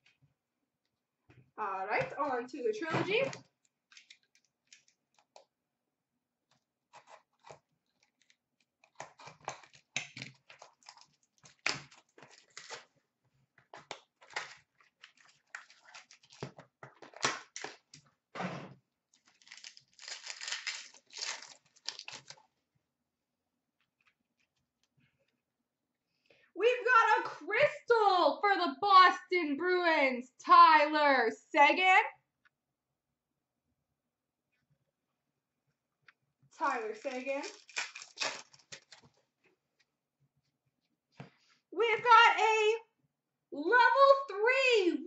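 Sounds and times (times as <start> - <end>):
card packs torn and crinkled: 8.1 - 13.0, 13.8 - 18.0, 19.2 - 22.5, 36.6 - 39.2.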